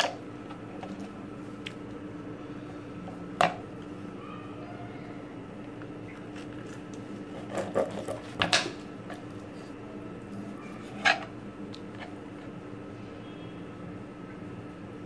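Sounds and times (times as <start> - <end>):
steady low hum: 0.0 - 15.0
knife scraping on cutting board: 7.3 - 8.5.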